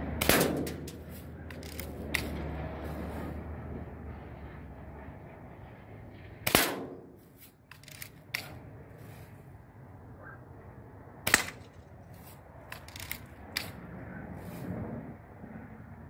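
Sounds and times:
bb gun shots: 0.2 - 1.0, 6.5 - 7.1, 11.3 - 11.7
gun lever clicks: 0.3 - 2.4, 7.7 - 8.6, 12.7 - 13.8.

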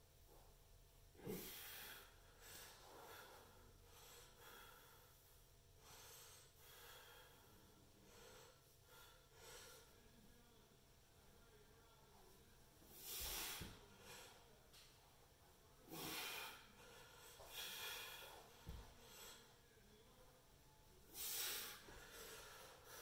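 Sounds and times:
man breathing heavily: 1.2 - 10.1, 12.9 - 14.6, 15.8 - 19.7, 21.1 - 23.0.

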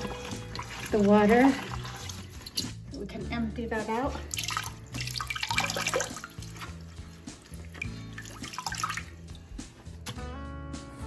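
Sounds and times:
background music with bass line: 0.0 - 11.0
water dripping into toilet bowl: 0.3 - 2.8, 4.3 - 9.5.

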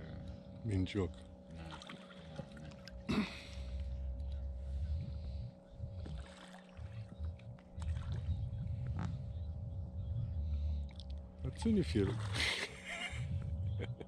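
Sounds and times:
water lapping against boat hull: 0.0 - 14.0
wind rumble on microphone: 3.6 - 14.0.

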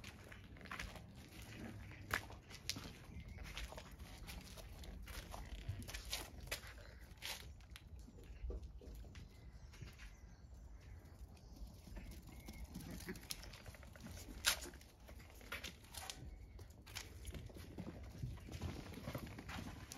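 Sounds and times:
footsteps on stone: 0.0 - 10.3
puppy paws scampering: 0.0 - 19.9.

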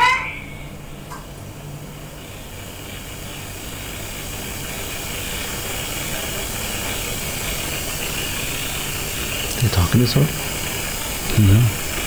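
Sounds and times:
low hum: 0.0 - 12.0
steady background hiss: 0.0 - 12.0.

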